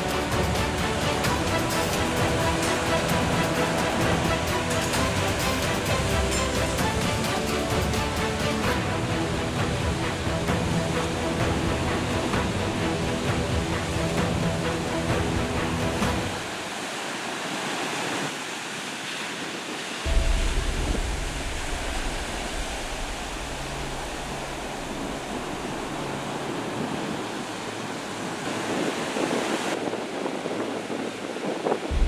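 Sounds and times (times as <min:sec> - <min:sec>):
background music: 0:00.0 - 0:16.6, 0:20.1 - 0:29.3
waves breaking over rocks: 0:00.0 - 0:32.0
low rumble: 0:20.1 - 0:26.8.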